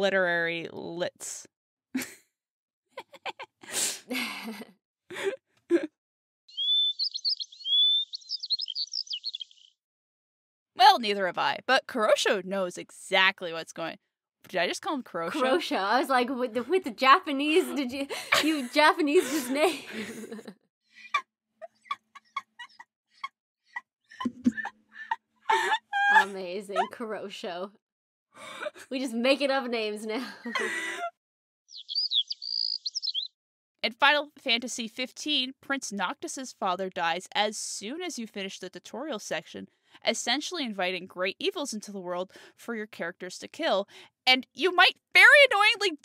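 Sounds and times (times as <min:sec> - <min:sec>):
gasps and laughter: 0:02.0 - 0:02.3, 0:03.0 - 0:05.9, 0:17.6 - 0:22.8, 0:24.1 - 0:27.0, 0:28.4 - 0:29.0, 0:30.2 - 0:31.2
bird song: 0:06.5 - 0:09.8, 0:31.7 - 0:33.4.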